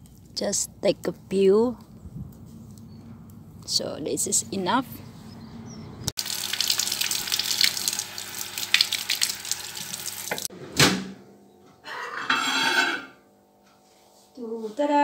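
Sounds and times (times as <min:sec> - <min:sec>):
tap running into sink: 0:08.7 - 0:10.5.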